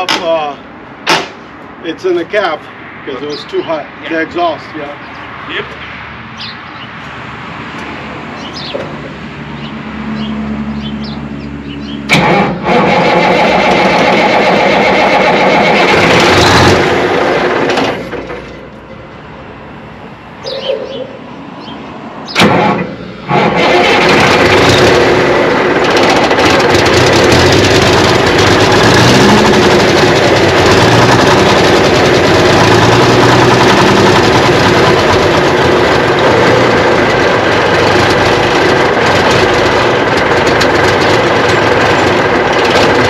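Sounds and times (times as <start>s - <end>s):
diesel engine cranking and starting: 8.3s - 18.8s, 21.6s - 43.0s.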